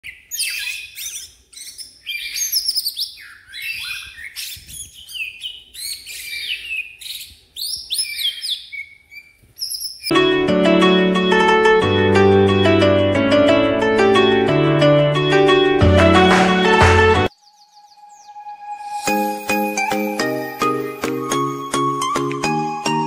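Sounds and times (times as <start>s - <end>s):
bird chirping and whistling: 0.0s - 10.1s, 17.3s - 23.0s
plucked harp music: 10.1s - 17.3s, 19.1s - 23.0s.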